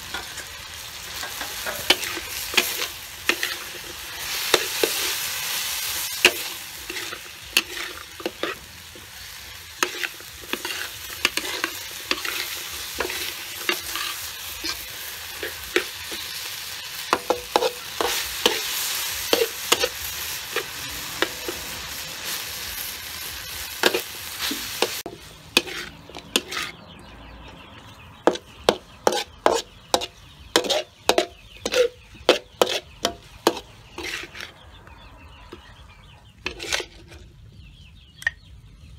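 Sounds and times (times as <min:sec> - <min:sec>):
meat sizzling in a wok: 0:00.0 - 0:26.7
spatula scraping a wok: 0:00.0 - 0:27.0, 0:28.2 - 0:34.8, 0:36.4 - 0:37.4.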